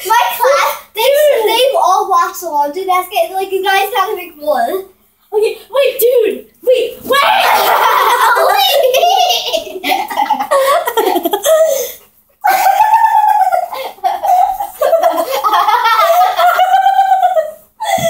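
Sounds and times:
girls laughing loudly: 0:07.1 - 0:18.0.

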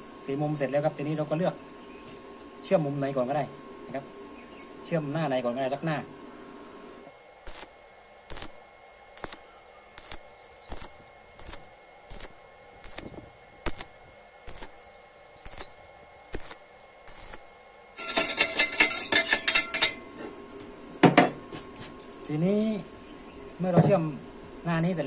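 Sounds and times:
welding arc crackle and pops: 0:07.4 - 0:19.0.

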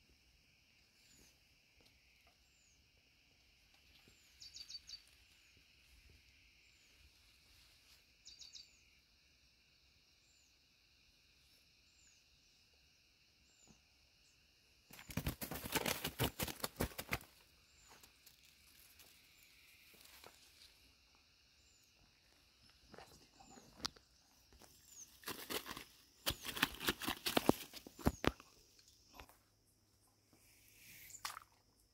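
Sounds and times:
high insect hum: 0:00.0 - 0:31.9
short bird chirps: 0:08.2 - 0:08.8, 0:30.6 - 0:31.4.

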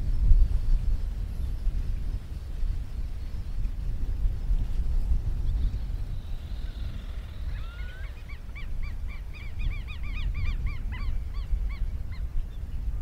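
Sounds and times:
whistling ducks calling: 0:06.8 - 0:11.8.

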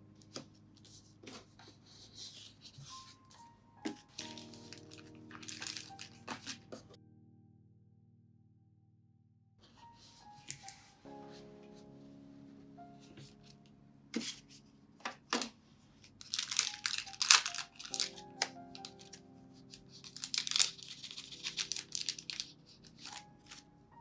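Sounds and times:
soft lofi music: 0:00.0 - 0:07.5, 0:09.6 - 0:24.0
plastic packaging crinkling: 0:04.0 - 0:06.8, 0:15.3 - 0:23.6.

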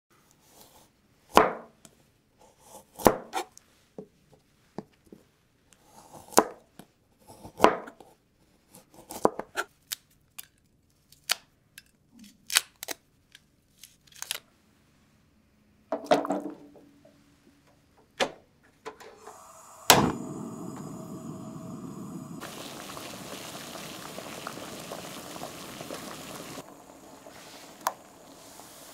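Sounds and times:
water heating in a steel pot: 0:19.2 - 0:28.9.

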